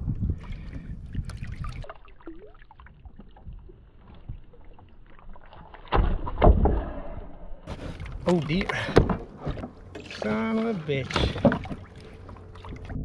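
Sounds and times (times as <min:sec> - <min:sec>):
wind rumbling on microphone: 0:00.0 - 0:02.0
water moving around kayak: 0:00.0 - 0:13.0.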